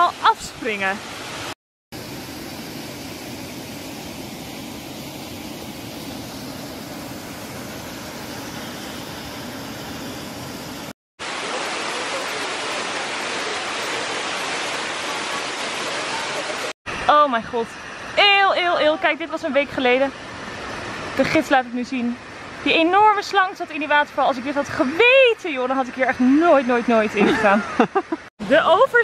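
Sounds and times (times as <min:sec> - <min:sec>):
waterfall pouring into pool: 0:11.2 - 0:16.7.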